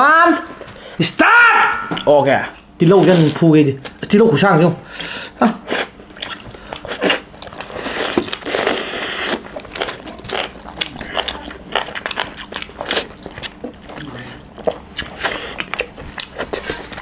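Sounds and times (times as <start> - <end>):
wet chewing and lip smacks: 5.8 - 17.0.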